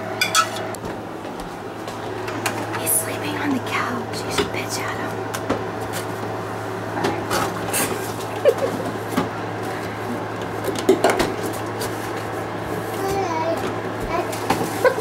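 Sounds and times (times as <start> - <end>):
pots and pans clanking: 0.0 - 0.7, 10.6 - 11.5.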